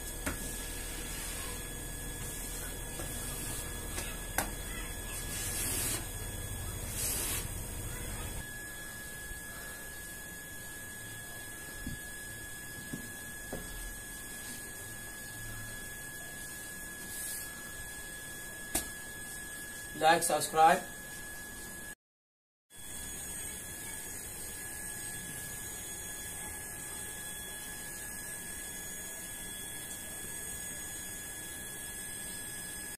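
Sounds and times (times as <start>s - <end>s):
steady hiss and hum: 0.0s - 8.4s
high whining tones: 0.0s - 11.1s
high-pitched hum: 0.0s - 21.9s, 22.8s - 32.9s.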